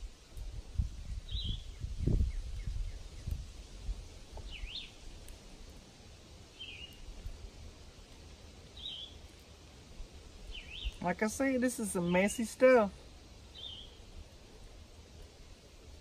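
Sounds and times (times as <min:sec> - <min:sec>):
bird chirping: 0:04.4 - 0:05.0, 0:06.6 - 0:07.0, 0:08.8 - 0:09.2, 0:10.5 - 0:11.2, 0:13.5 - 0:14.1.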